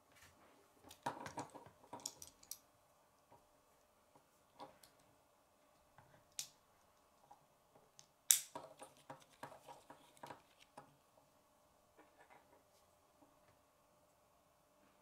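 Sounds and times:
plastic pieces clicking together: 0.9s - 2.6s.

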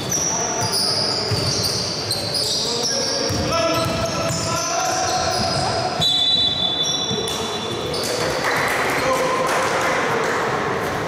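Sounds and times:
basketball shoes squeaking: 0.0s - 8.6s
players' voices: 0.0s - 11.0s
referee's whistle: 5.1s - 7.7s.

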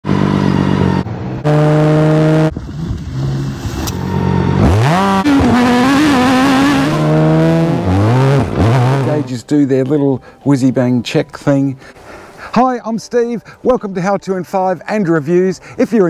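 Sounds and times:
motorcycle engine revving: 0.0s - 9.3s.

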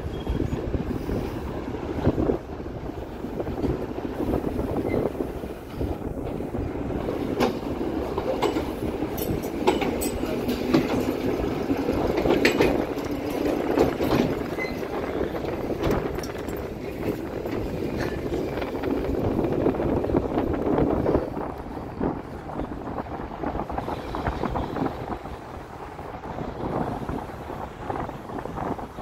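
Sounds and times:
tram wheels rumbling on rails: 0.0s - 29.0s
sharp rail clicks: 1.4s - 20.2s.

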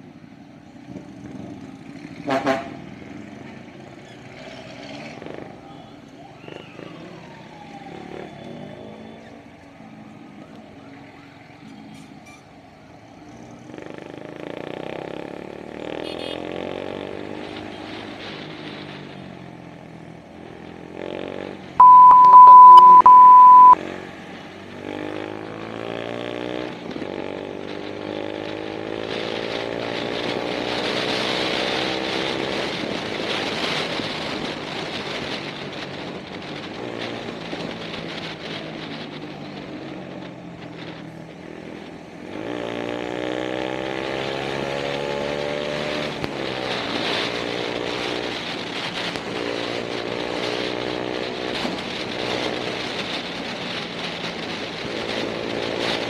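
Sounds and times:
loud steady bleep: 21.8s - 23.8s.

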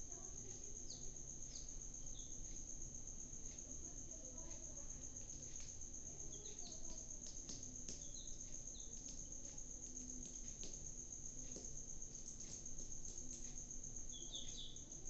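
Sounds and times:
cricket trill: 0.0s - 15.0s.

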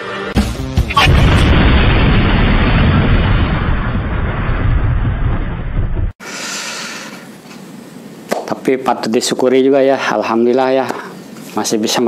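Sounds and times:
blast-like bass rumble: 0.4s - 6.1s.

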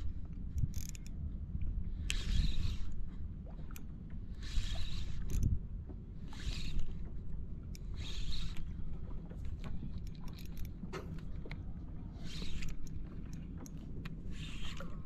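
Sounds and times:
water splashing against boat: 0.0s - 15.0s
wind rumble on microphone: 0.0s - 15.0s
spinning reel clicking: 6.4s - 6.9s.

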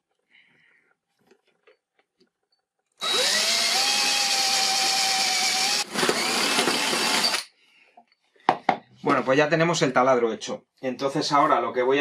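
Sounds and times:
electric drill boring into pipe: 3.0s - 7.5s.

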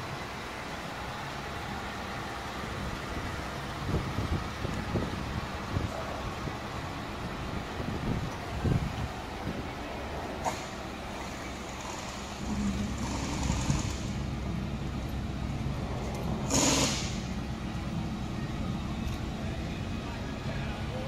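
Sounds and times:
vehicle engine idling: 0.0s - 21.0s
short loud hiss: 16.4s - 17.4s.

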